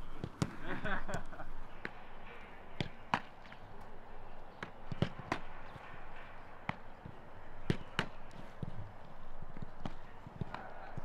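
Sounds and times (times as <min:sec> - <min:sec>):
footballs being kicked: 0:00.1 - 0:02.0, 0:02.7 - 0:03.7, 0:04.6 - 0:05.7, 0:06.6 - 0:11.0.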